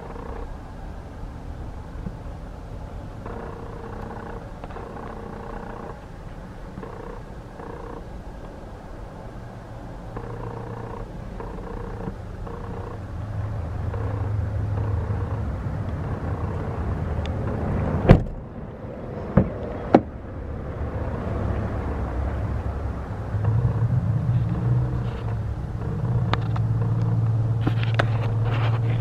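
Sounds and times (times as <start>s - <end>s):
pickup engine idling: 0.0s - 29.0s
sharp thump: 18.0s - 18.4s.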